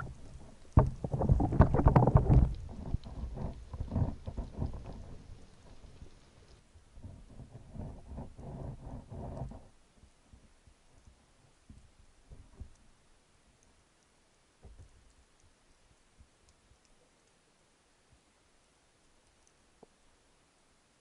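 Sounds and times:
soft low thumps: 0:00.0 - 0:05.3
underwater clicks and ticks: 0:00.0 - 0:17.5, 0:18.1 - 0:20.0.

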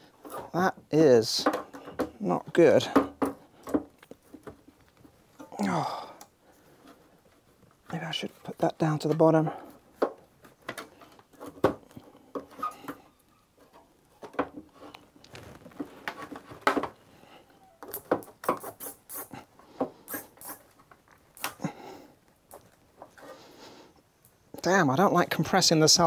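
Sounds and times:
battery cell scraping and rubbing: 0:17.9 - 0:21.6.

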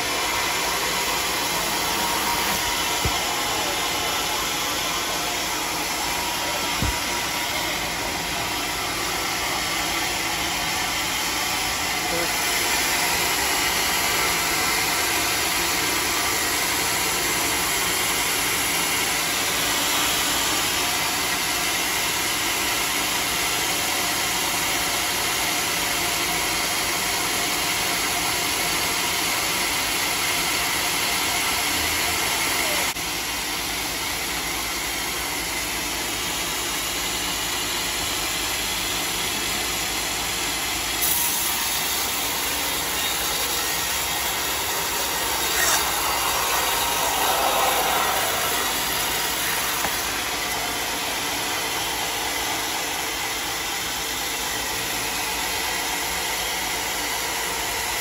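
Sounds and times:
band saw cutting log: 0:40.8 - 0:53.6.

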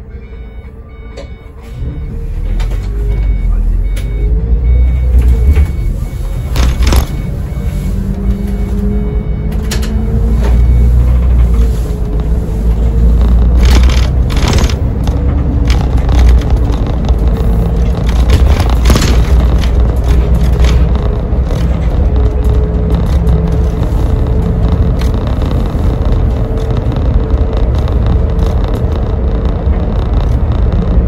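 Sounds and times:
bus diesel engine rumbling: 0:00.0 - 0:31.0
sharp rattles: 0:13.1 - 0:31.0.

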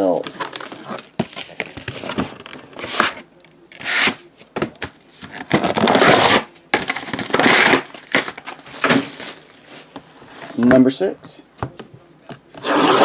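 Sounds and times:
cardboard packaging crinkling: 0:05.4 - 0:09.9.

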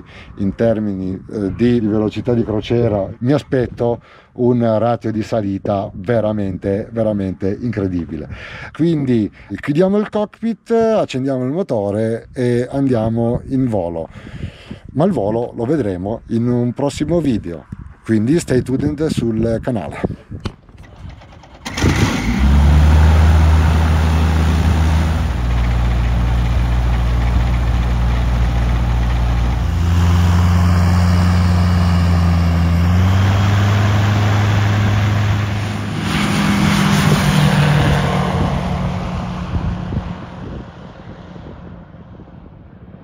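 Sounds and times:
aircraft engine running: 0:20.6 - 0:43.0.

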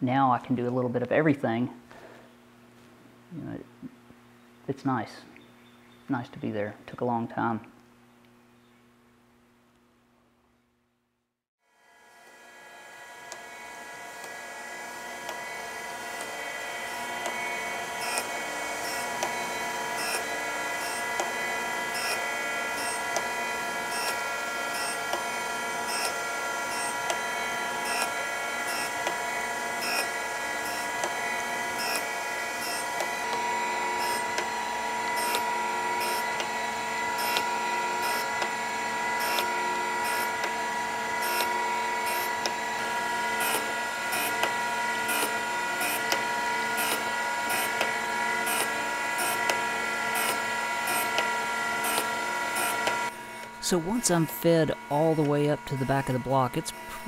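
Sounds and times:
grinder spindle whine: 0:11.8 - 0:57.0
scratchy grinding contacts: 0:15.2 - 0:57.0.

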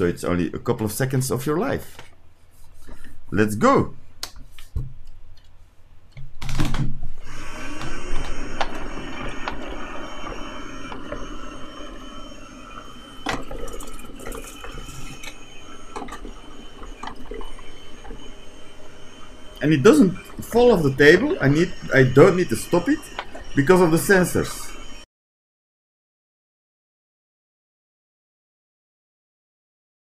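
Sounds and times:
robot vacuum motor whine: 0:07.1 - 0:25.1.

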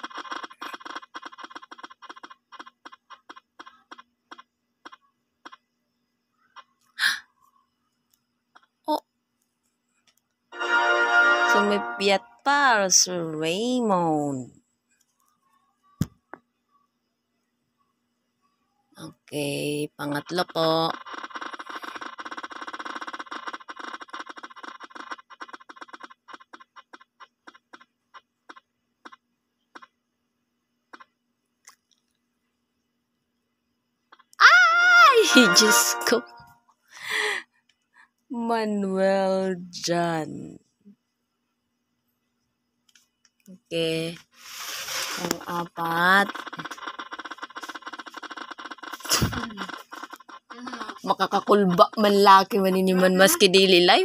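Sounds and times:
spinning wheel app ticking: 0:10.6 - 0:13.6, 0:20.0 - 0:29.2, 0:35.2 - 0:36.5, 0:44.7 - 0:54.0
spinning wheel ticking: 0:45.2 - 0:54.0.

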